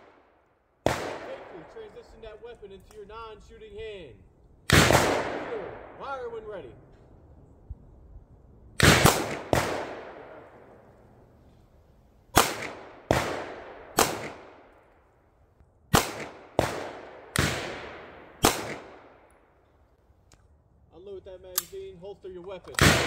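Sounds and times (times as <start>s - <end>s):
pistol shots echoing: 0.0s - 3.0s, 4.7s - 6.0s, 8.8s - 10.8s, 12.3s - 14.8s, 15.9s - 19.4s, 22.8s - 23.0s.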